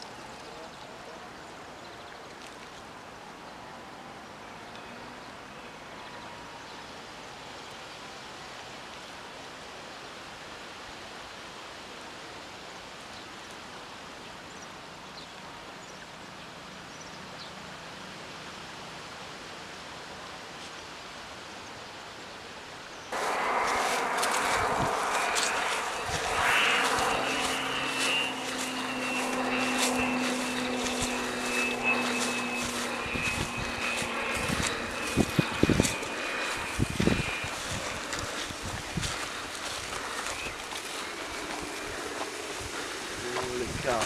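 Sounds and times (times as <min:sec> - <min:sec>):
steady hiss-like rush: 0:23.1 - 0:44.0
loud rushing noise: 0:23.2 - 0:39.1.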